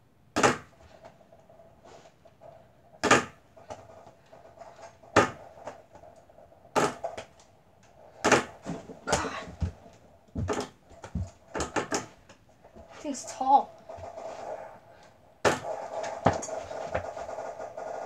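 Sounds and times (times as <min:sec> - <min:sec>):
ball knocking on backboard and door: 0:00.4 - 0:00.8, 0:03.0 - 0:03.4, 0:05.1 - 0:05.5, 0:06.8 - 0:07.2, 0:08.2 - 0:09.8, 0:10.4 - 0:12.2
ball bouncing on floor: 0:06.8 - 0:07.3, 0:08.2 - 0:12.9, 0:15.4 - 0:17.6.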